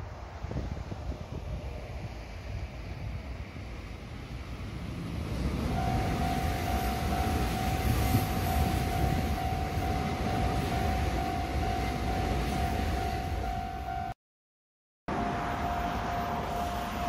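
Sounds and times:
train passing with rumble: 0.0s - 14.1s
level crossing warning bell: 5.7s - 14.2s, 15.1s - 17.0s.

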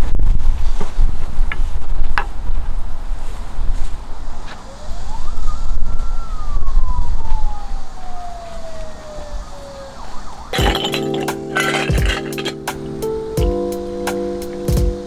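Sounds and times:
sliding tone: 10.6s - 12.8s.

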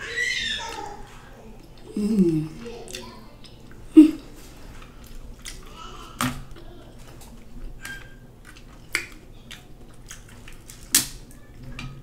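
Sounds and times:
handling and eating noises: 0.0s - 12.0s
crab shell cracking: 5.2s - 6.6s, 7.2s - 11.4s.

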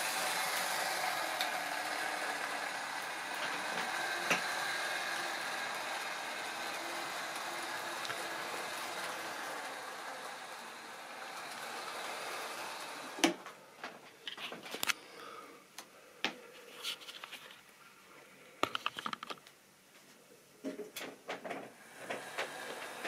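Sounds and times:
model train running on track: 0.0s - 13.4s, 21.8s - 23.0s.

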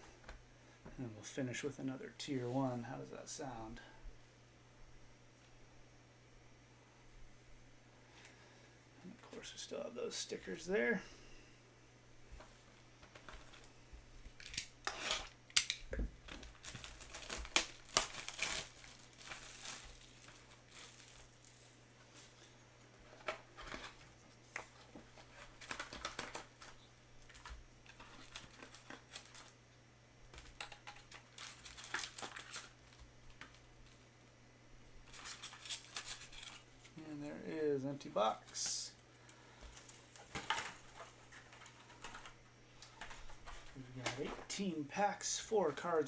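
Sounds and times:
plastic shrink wrap crinkling: 14.3s - 29.6s, 30.3s - 34.0s, 35.0s - 36.9s.

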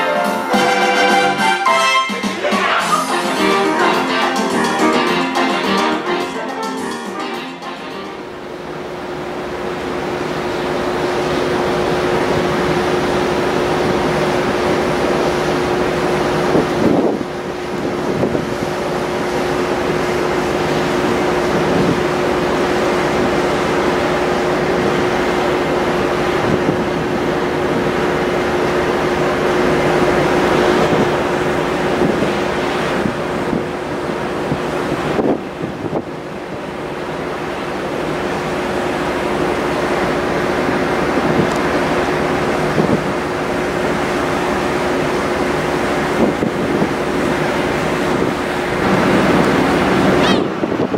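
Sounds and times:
ferry engine droning: 0.0s - 50.9s
sea water rushing: 0.0s - 50.9s
wind on microphone: 16.2s - 19.1s, 26.2s - 28.3s, 29.3s - 36.3s, 40.9s - 43.3s, 45.9s - 50.9s.

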